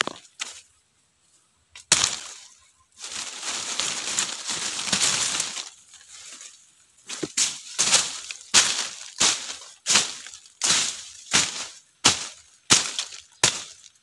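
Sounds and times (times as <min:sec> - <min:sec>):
sharp crack: 0:01.8 - 0:02.5, 0:07.8 - 0:13.9
dry leaves crackling and rustling: 0:01.8 - 0:14.0.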